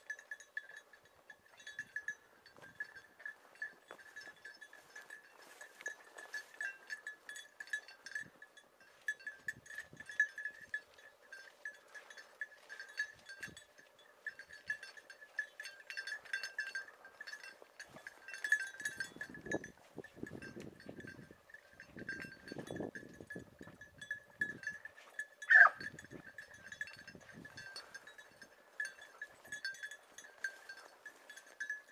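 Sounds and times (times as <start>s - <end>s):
dog collar bells jingling: 0.0s - 31.9s
brush rustling: 3.4s - 7.0s.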